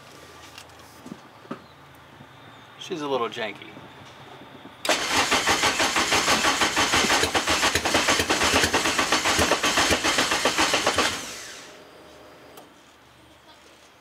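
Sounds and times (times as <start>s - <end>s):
car engine cranking on starter: 4.8s - 11.8s.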